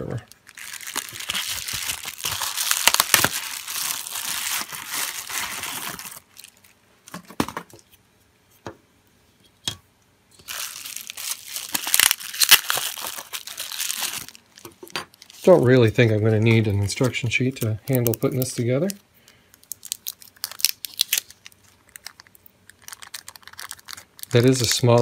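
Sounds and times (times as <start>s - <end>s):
bubble wrap bag crinkling: 0.2s - 7.2s, 10.4s - 25.0s.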